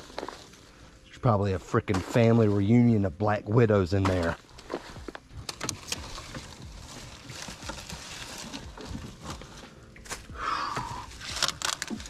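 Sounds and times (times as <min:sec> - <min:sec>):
hands rustling dry leaves: 0:04.0 - 0:12.0.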